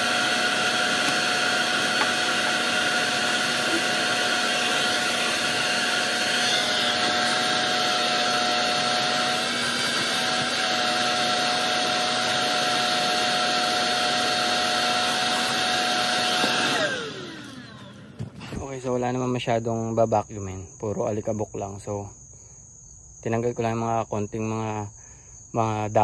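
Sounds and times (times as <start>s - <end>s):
shop vacuum whining: 0.0s - 18.8s
vacuum motor winding down: 0.0s - 18.8s.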